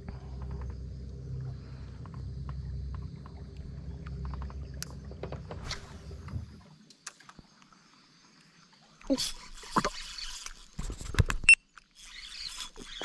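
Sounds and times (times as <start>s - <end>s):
electric boat motor humming: 0.0s - 6.2s.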